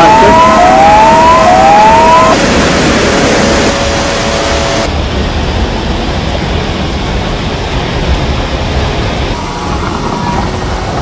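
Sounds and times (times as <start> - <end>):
electronic siren whooping: 0.0 - 4.9.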